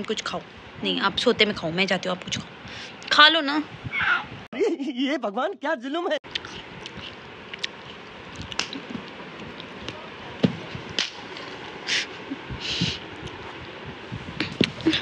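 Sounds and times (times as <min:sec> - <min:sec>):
short hissy rustles: 0:11.8 - 0:13.1.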